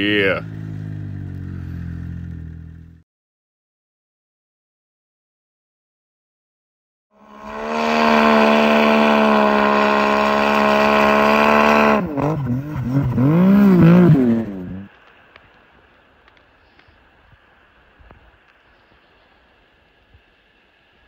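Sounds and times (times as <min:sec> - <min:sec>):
snowmobile engine revving: 0:07.2 - 0:14.9
faint hiss: 0:14.7 - 0:21.0.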